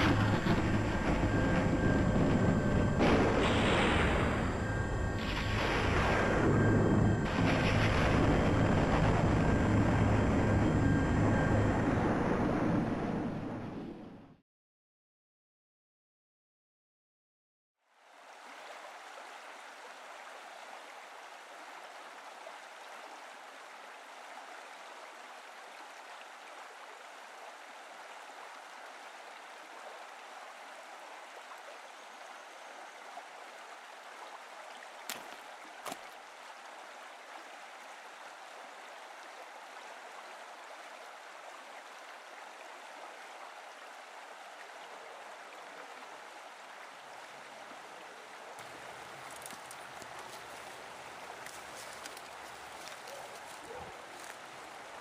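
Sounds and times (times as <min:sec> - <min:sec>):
creek water rushing over rocks: 0:18.0 - 0:55.0.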